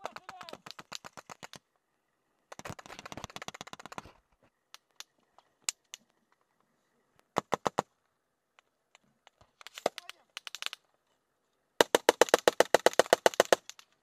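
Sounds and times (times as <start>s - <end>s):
automatic gunfire burst: 11.8s - 13.7s.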